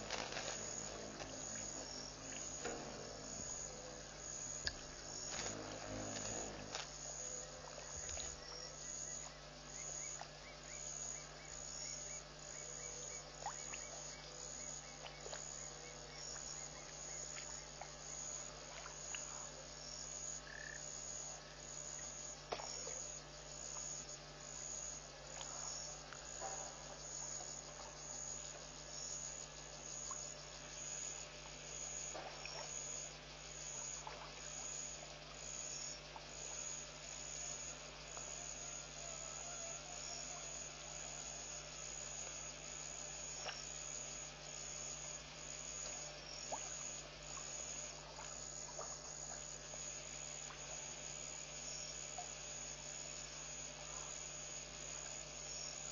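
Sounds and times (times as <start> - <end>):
low hum: 0.0 - 9.3
cricket chirping: 0.0 - 55.9
short frog calls: 20.2 - 55.9.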